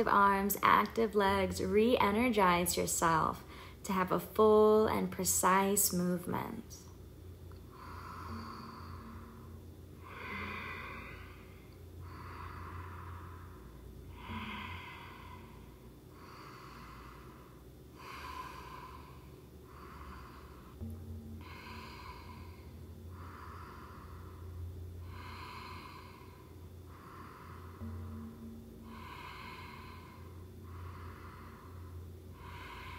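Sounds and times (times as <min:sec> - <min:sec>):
deep breaths: 0:03.4 - 0:03.8, 0:07.5 - 0:32.9.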